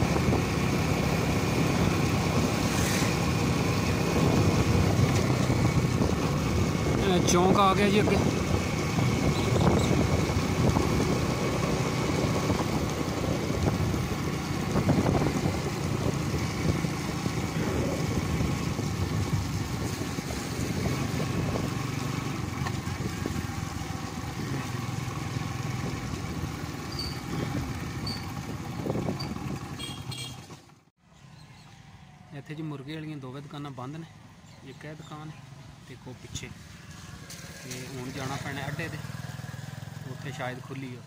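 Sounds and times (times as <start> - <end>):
wind and road noise: 0.0 - 41.0.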